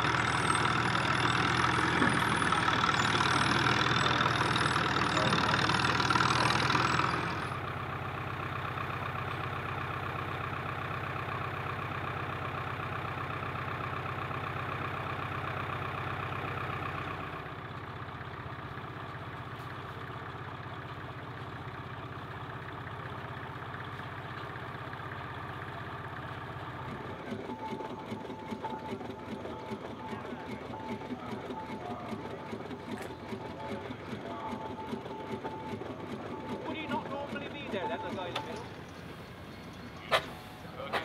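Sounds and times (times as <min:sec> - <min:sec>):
small tractor engine running: 0:00.0 - 0:41.0
vintage engines running: 0:00.0 - 0:41.0
rapid rhythmic machine clatter: 0:26.8 - 0:41.0.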